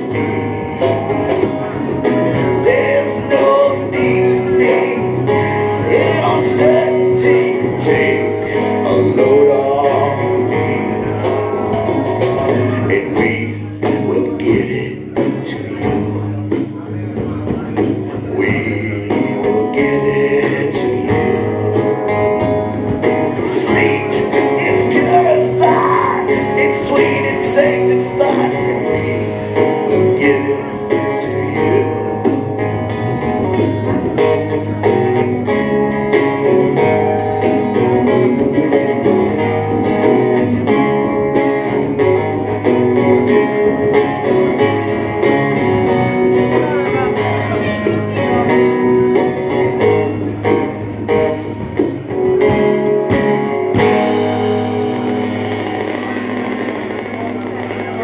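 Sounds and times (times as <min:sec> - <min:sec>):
person singing: 0:00.0 - 0:16.4, 0:17.8 - 0:22.5, 0:23.2 - 0:32.6
live rock band playing: 0:00.0 - 0:58.0.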